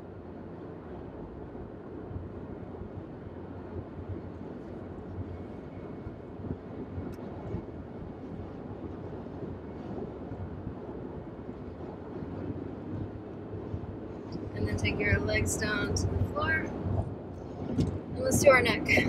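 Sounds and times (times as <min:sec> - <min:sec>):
low road rumble in car cabin: 0:00.0 - 0:19.0.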